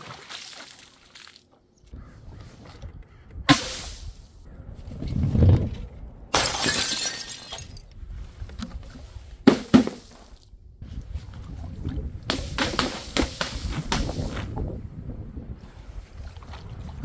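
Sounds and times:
glass shattering: 6.4s - 7.8s.

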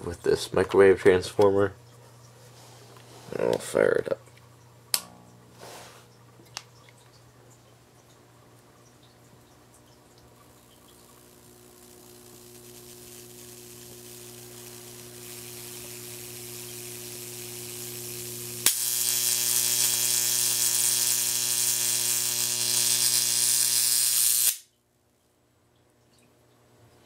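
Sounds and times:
electric arc sizzling buzz: 10.5s - 24.7s.

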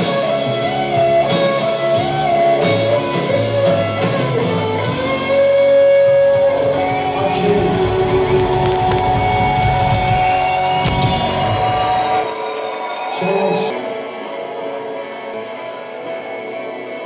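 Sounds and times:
bending lead guitar notes: 0.0s - 12.9s
strummed guitars: 0.0s - 17.0s.

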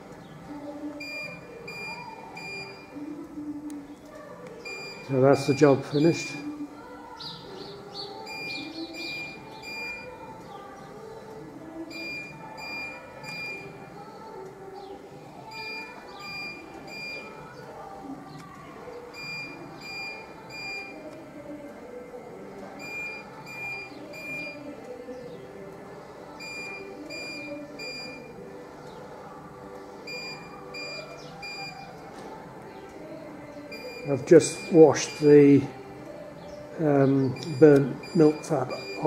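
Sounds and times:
music playing: 0.0s - 39.0s
electronic alarm beeping: 1.0s - 3.0s, 4.6s - 6.4s, 8.2s - 10.3s, 11.8s - 13.8s, 15.4s - 17.5s, 19.1s - 21.1s, 22.8s - 24.8s, 26.4s - 28.4s, 30.0s - 32.0s, 33.6s - 35.2s, 37.1s - 39.0s.

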